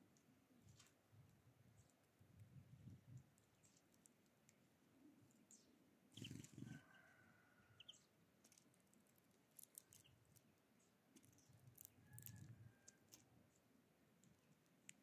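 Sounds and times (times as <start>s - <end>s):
birds cracking seeds clicks: 3.3s - 4.6s, 7.8s - 13.3s, 14.2s - 15.0s
faint drawn-out bird call: 5.6s - 8.1s.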